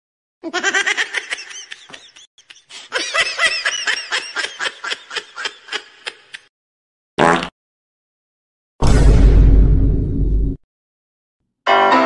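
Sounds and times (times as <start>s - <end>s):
snickering laugh sound effect: 0.4s - 6.5s.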